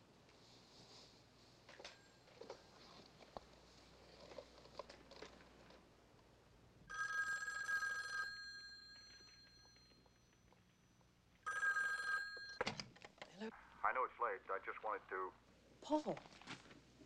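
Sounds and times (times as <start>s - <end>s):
telephone bell ringing: 6.9s - 12.6s
rustling: 16.1s - 17.0s.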